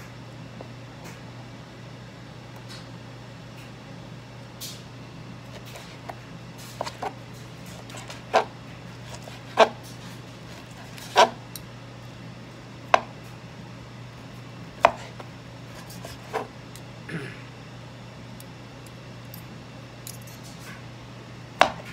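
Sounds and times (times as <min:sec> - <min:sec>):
knife cutting meat: 0:07.8 - 0:11.4, 0:14.8 - 0:16.5.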